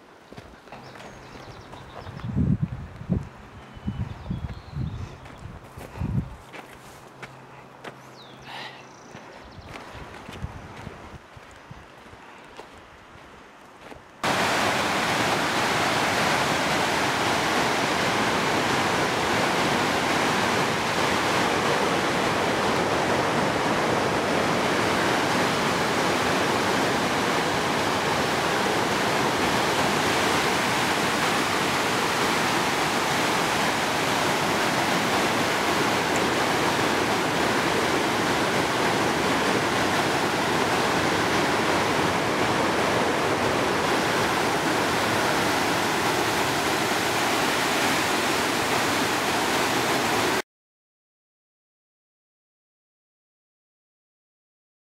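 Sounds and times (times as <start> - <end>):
water rushing over rocks: 14.2 - 50.4.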